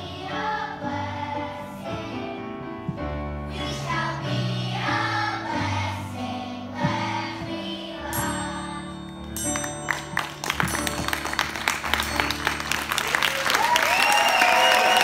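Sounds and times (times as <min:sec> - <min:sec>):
children's choir singing: 0:00.0 - 0:09.3
instrumental accompaniment: 0:01.8 - 0:13.8
audience clapping: 0:09.6 - 0:15.0.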